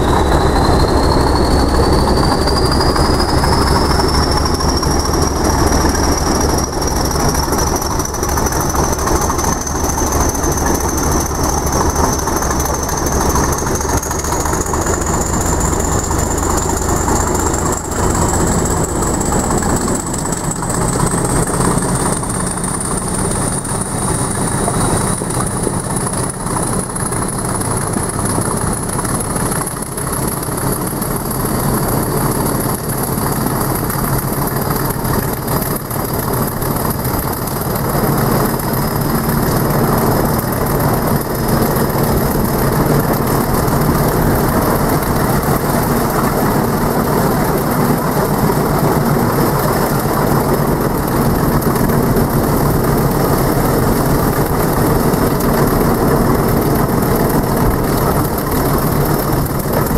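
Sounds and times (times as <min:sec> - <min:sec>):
turbocharger whistle: 0:00.0 - 0:29.9
diesel locomotive engine: 0:00.0 - 0:59.9
wheel and rail noise: 0:00.0 - 0:59.9.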